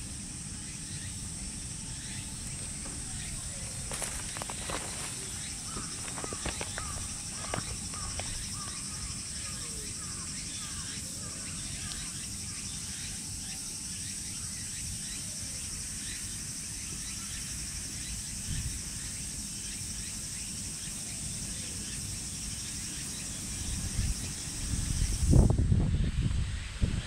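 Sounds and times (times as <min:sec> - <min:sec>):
insects buzzing: 0:00.0 - 0:27.0
wind rumble on microphone: 0:18.4 - 0:18.9, 0:23.5 - 0:27.0.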